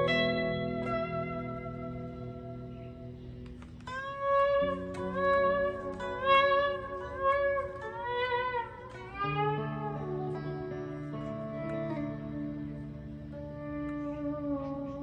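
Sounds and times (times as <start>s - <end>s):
electric guitar lead phrase: 0.0s - 15.0s.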